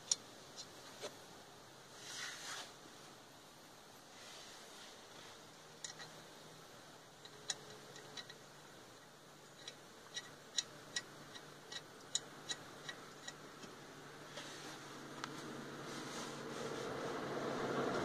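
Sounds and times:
metallic taps on lug nuts: 0:09.5 - 0:13.8.

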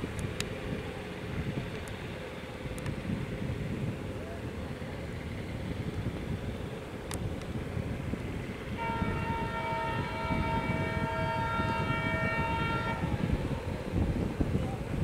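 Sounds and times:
train rumbling on track: 0:00.0 - 0:15.0
locomotive air horn chord: 0:08.7 - 0:13.7.

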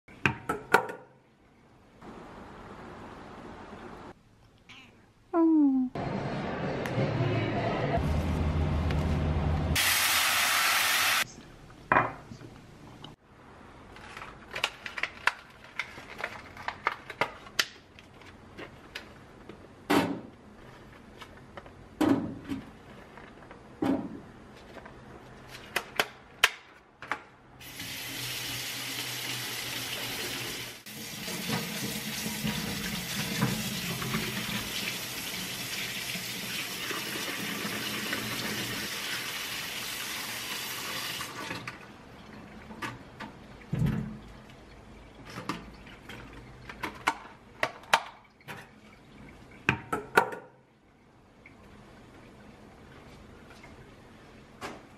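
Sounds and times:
tap water pouring: 0:27.7 - 0:46.9.

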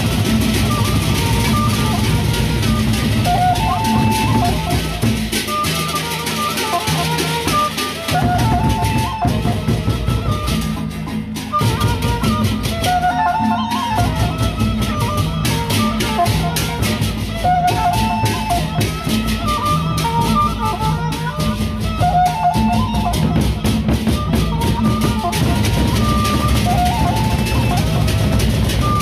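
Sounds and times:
rapid clashing cymbals: 0:00.0 - 0:08.2
large barrel drums beaten: 0:00.0 - 0:29.0.

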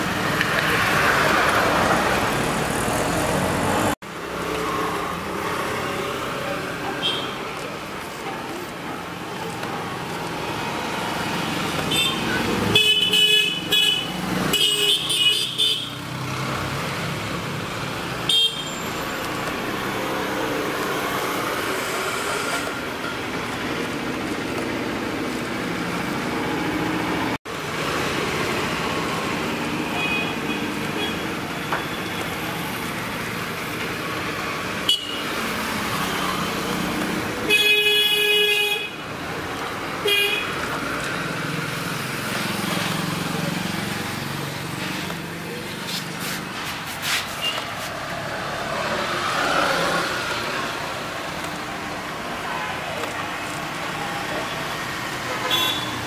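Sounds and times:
street traffic noise: 0:00.0 - 0:56.0
car horn honks: 0:18.3 - 0:18.9, 0:34.9 - 0:35.2, 0:40.0 - 0:40.5, 0:55.5 - 0:56.0.

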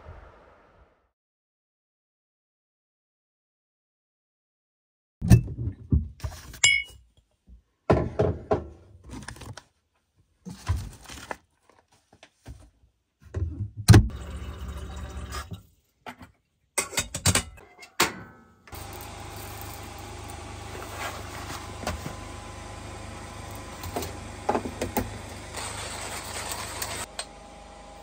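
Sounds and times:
kitchen items knocked on countertop: 0:07.9 - 0:08.7
tap water running into kettle: 0:14.1 - 0:15.6.

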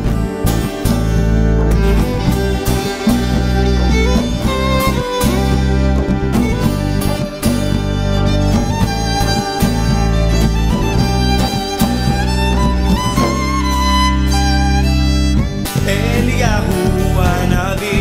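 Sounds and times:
violin melody: 0:00.0 - 0:17.8
acoustic guitar: 0:00.0 - 0:18.0
bass line: 0:00.0 - 0:18.0.

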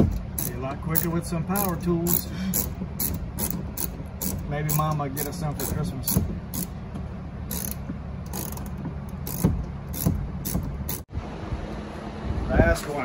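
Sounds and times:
hand ratchet clicking: 0:00.0 - 0:06.8, 0:07.5 - 0:11.1.

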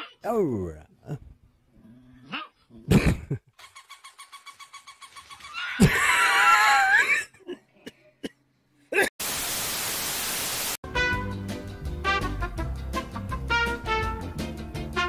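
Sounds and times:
tv static hiss: 0:09.2 - 0:10.8
music: 0:10.8 - 0:15.0.

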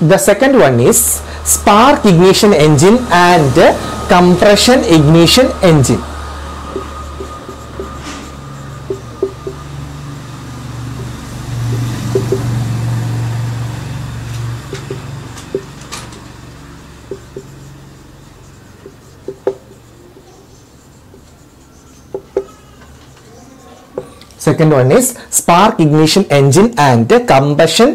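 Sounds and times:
marker squeaking on whiteboard: 0:04.1 - 0:12.6, 0:14.6 - 0:25.0.

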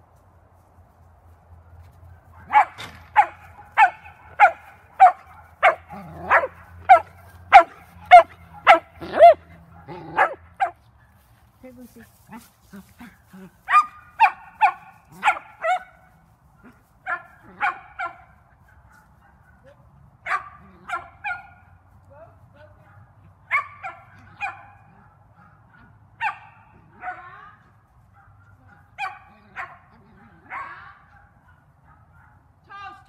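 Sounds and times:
dog barking: 0:02.2 - 0:10.8, 0:13.7 - 0:16.0, 0:16.6 - 0:21.6, 0:22.8 - 0:27.3, 0:28.1 - 0:32.5.

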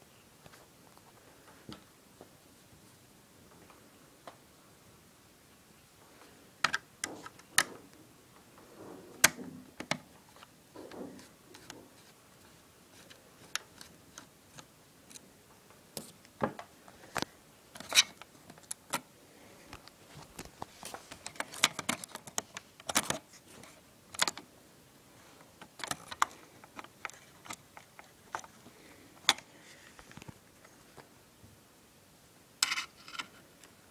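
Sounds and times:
plastic and metal parts clicking: 0:21.1 - 0:23.2, 0:24.1 - 0:24.4, 0:25.6 - 0:28.6.

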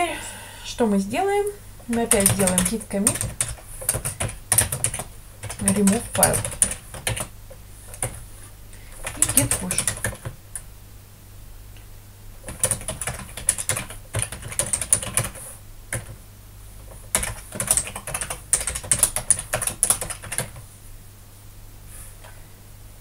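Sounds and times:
computer keyboard typing: 0:01.9 - 0:07.3, 0:07.9 - 0:08.2, 0:08.9 - 0:10.6, 0:12.4 - 0:16.2, 0:16.9 - 0:20.6.

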